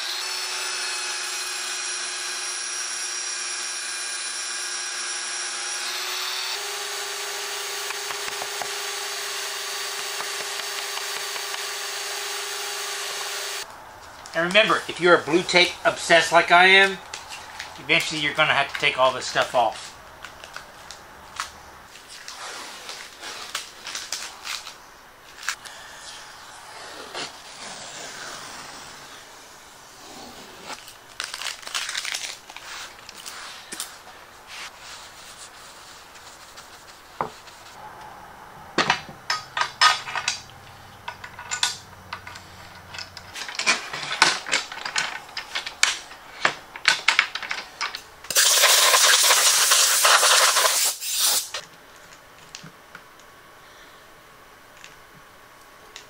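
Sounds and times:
loud steady rasping: 0.0s - 13.7s
tape peeled off laminate: 19.7s - 25.7s, 30.1s - 37.8s, 48.3s - 51.7s
metal hardware clicking and clattering: 38.8s - 48.1s.

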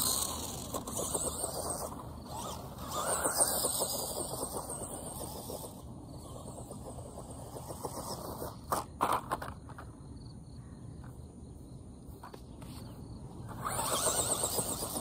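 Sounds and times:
electric motor whining: 0.0s - 8.5s, 13.5s - 15.0s
toy car rattling over grass: 0.0s - 9.9s, 12.2s - 15.0s.

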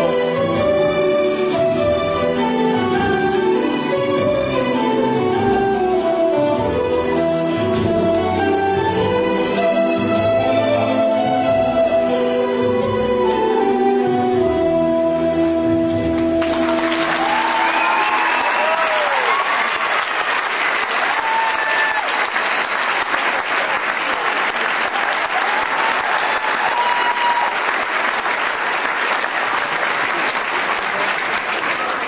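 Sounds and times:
audience applauding: 16.2s - 32.0s
cheering calls: 16.4s - 32.0s.

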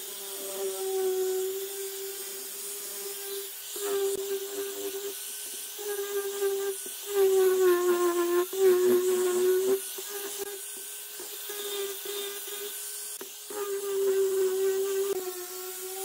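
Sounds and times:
angle grinder sanding wood: 0.0s - 16.0s.

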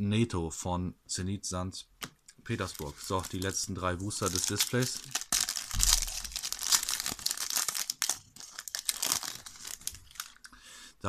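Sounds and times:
cards rustling: 2.5s - 10.4s
foil wrapper crinkling and tearing: 2.5s - 10.5s.

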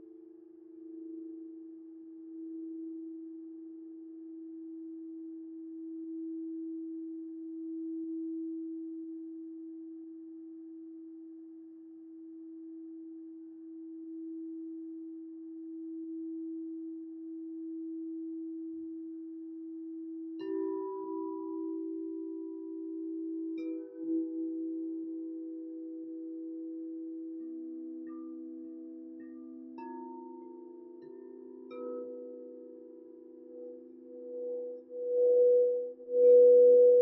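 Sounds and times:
singing bowl low tone: 0.6s - 37.0s
higher singing bowl tone: 33.4s - 37.0s.

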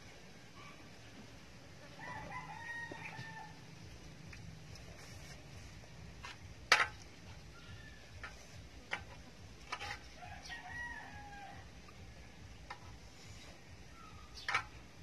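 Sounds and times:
rooster crowing: 1.9s - 3.7s, 10.1s - 11.8s.

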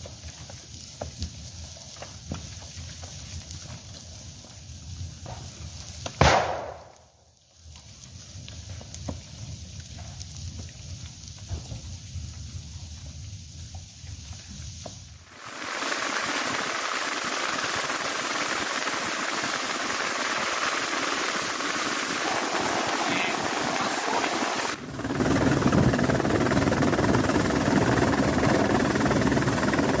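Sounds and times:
helicopter rotor and engine: 15.3s - 30.0s.

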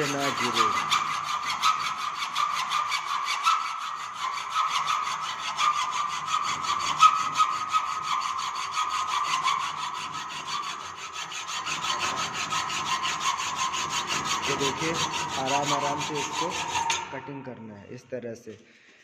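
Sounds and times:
hacksaw cutting metal: 0.0s - 17.2s.

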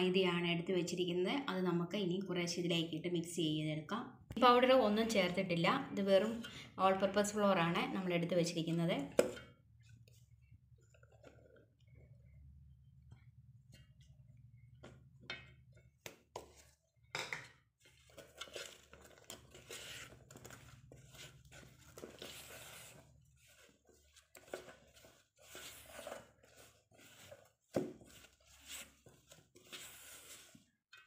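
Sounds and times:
spatula scraping metal bowl: 17.8s - 30.8s.

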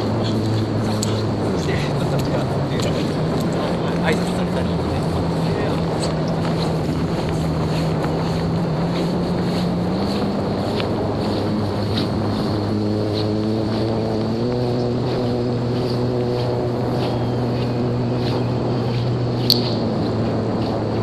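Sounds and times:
model plane motor humming: 0.0s - 21.0s
wind on microphone: 0.0s - 21.0s.

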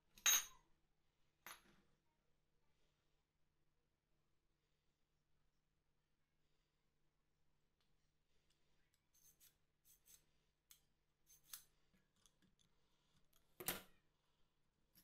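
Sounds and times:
small metallic clicks and scrapes: 8.5s - 13.8s.

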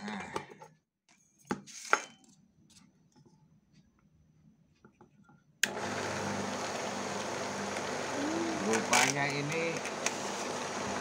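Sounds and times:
cooling fan rushing: 5.7s - 11.0s
electric motor humming: 5.7s - 11.0s.

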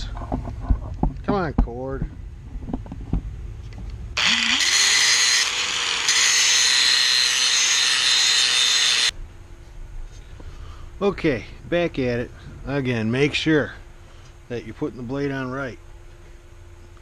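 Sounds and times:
angle grinder grinding steel: 4.2s - 9.1s.

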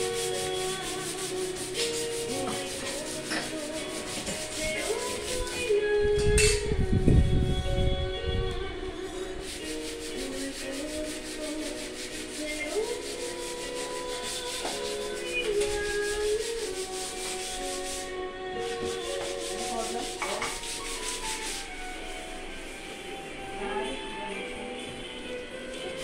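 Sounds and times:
sandpaper scraping putty: 0.0s - 5.6s, 9.4s - 18.1s, 18.7s - 22.8s.

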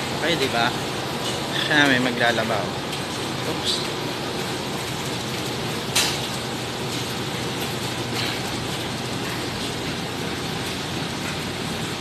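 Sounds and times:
low machinery hum: 0.0s - 12.0s.

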